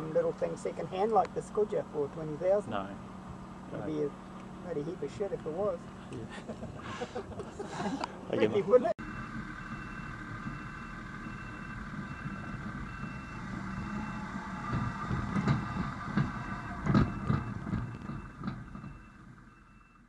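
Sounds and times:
diesel loader engine running: 0.0s - 20.0s
clunks and knocks: 11.8s - 19.4s.

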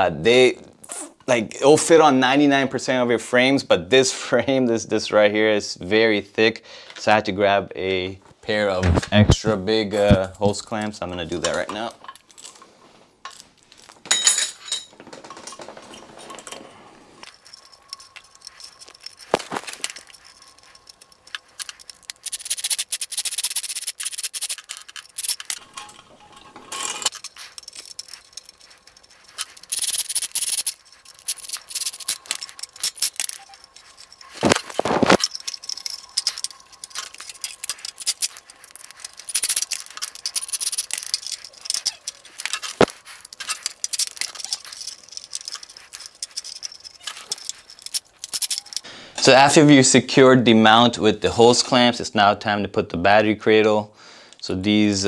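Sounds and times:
metal hose clamps clinking and scraping: 10.0s - 49.6s.

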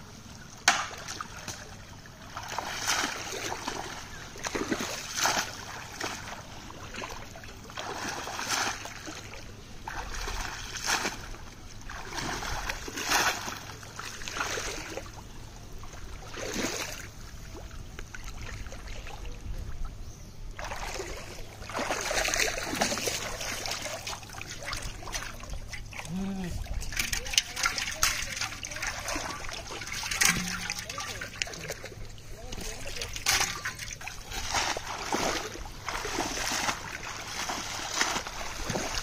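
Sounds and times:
pond water splashing and sloshing: 0.0s - 39.0s.

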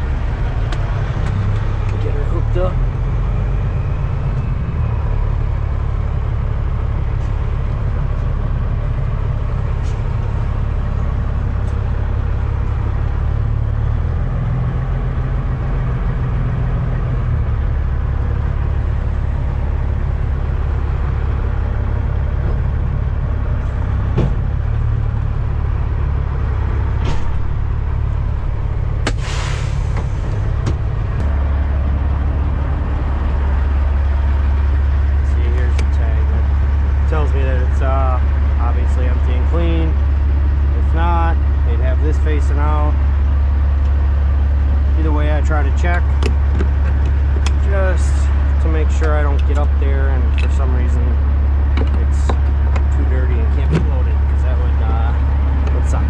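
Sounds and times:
truck diesel engine drone: 0.0s - 56.0s
short hiss of air: 29.1s - 30.3s.

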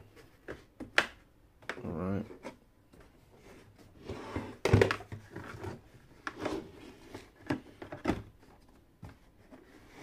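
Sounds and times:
plastic case knocking and scraping: 4.3s - 6.6s.

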